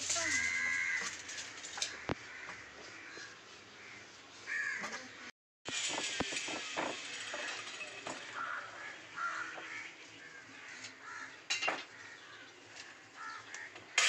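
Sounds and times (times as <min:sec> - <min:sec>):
crow cawing: 0:00.2 - 0:05.0, 0:08.3 - 0:13.8.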